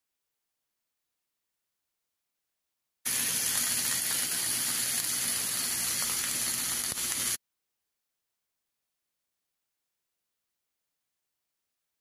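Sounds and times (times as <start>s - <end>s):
chicken sizzling in frying pan: 3.1s - 7.4s.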